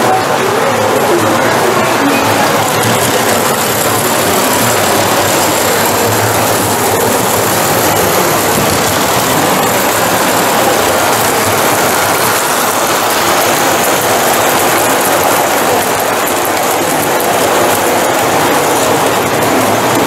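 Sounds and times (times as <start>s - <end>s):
model train running: 0.0s - 20.0s.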